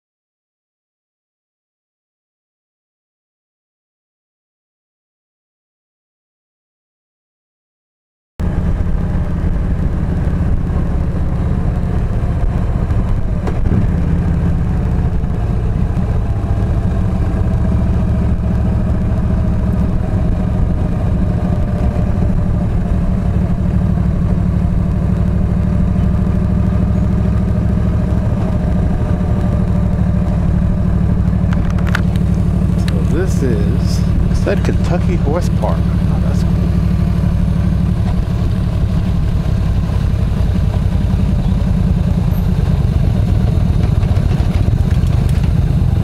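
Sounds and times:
motorcycle engine rumble: 8.4 - 46.0.

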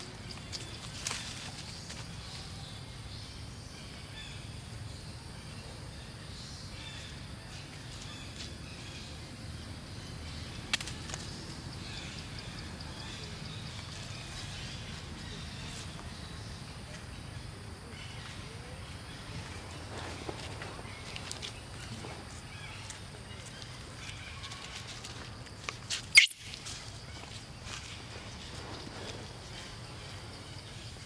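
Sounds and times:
faint high chirps: 26.1 - 26.8.

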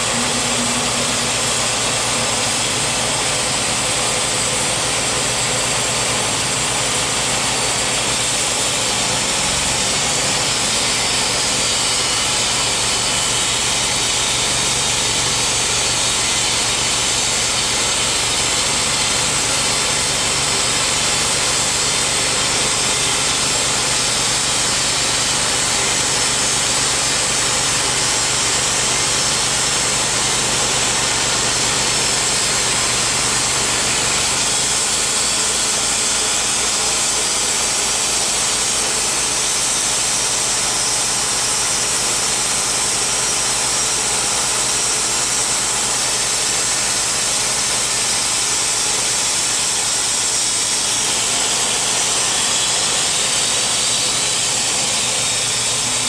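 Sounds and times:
band blade cutting log: 0.0 - 56.0
sawmill engine running: 0.0 - 56.0.

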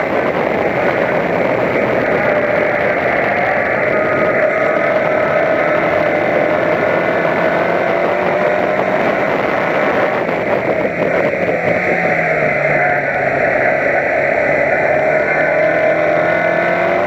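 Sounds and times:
race car engine running: 0.0 - 17.0
road and wind noise: 0.0 - 17.0.

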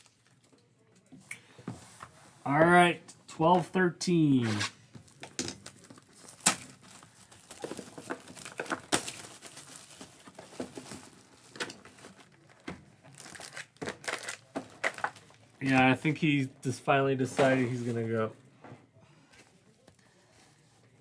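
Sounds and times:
foil packs crinkling: 5.1 - 16.0.

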